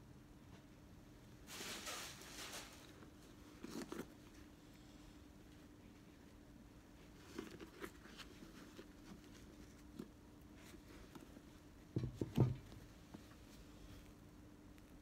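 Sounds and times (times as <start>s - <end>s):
faint steady hum: 0.0s - 15.0s
shoes thumping on table: 11.9s - 12.8s.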